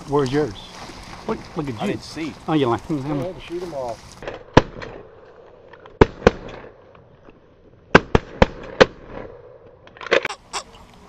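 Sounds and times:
shotgun shots: 4.2 - 5.2, 6.0 - 6.8, 7.9 - 9.5.

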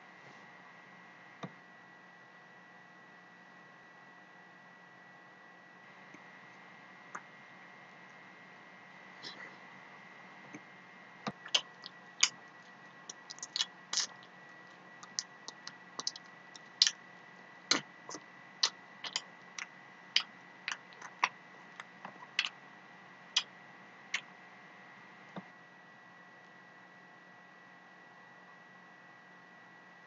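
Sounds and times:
faint electrical hum: 0.0 - 30.0
mouth chewing food with clicks: 11.3 - 17.0, 17.7 - 22.6.

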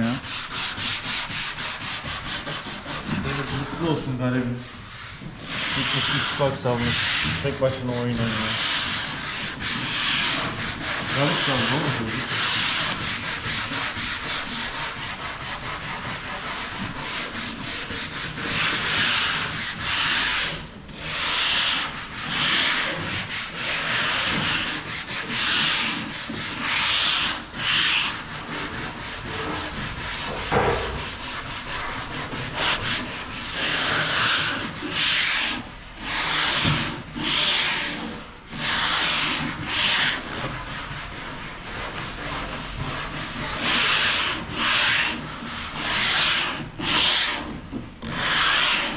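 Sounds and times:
sandpaper rubbing on wood: 0.0 - 48.9
sharp knock: 30.4 - 31.2.

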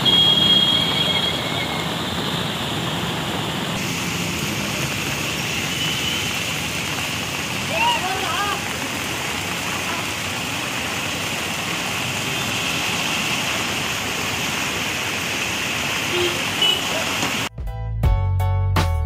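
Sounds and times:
heavy rain: 0.0 - 17.5
traffic: 0.0 - 17.5
tyres splashing through water: 0.0 - 17.5
music with a beat: 17.5 - 19.0.

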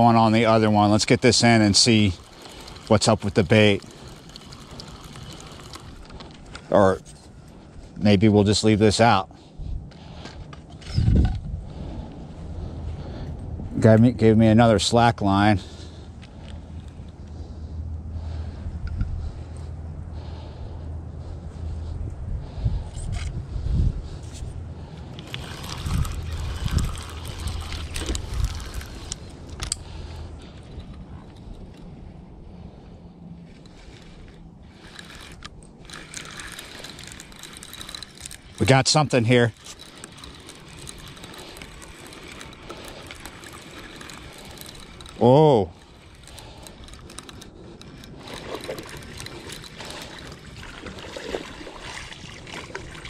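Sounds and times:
water splashing and trickling: 0.0 - 6.2, 25.2 - 29.3, 48.2 - 53.0
fishing reel clicks: 0.0 - 6.6, 25.1 - 30.2, 33.6 - 53.0
wind buffeting microphone: 9.4 - 53.0.

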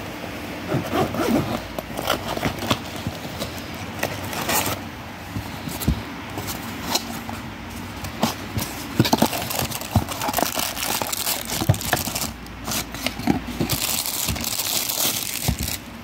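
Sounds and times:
zip being run: 0.7 - 1.6.

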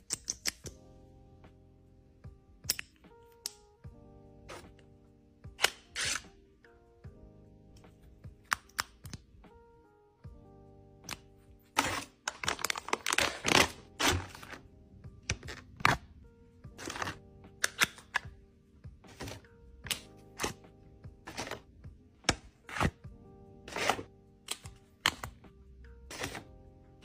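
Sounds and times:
quiet background music: 0.0 - 27.0
paper and cardboard crinkling: 11.8 - 14.6.

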